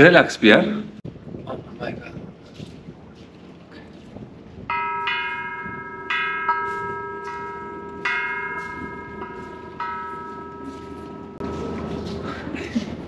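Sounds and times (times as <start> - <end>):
large metal bell ringing: 4.7 - 12.8.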